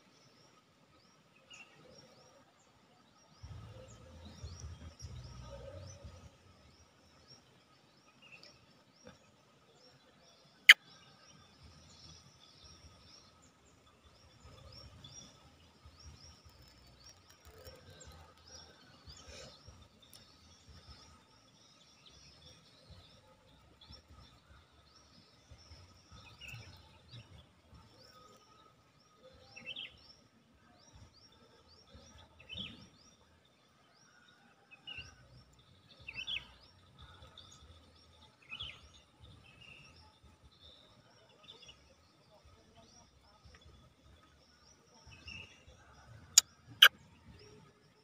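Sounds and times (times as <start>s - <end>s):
small birds chirping: 0.2s - 33.7s.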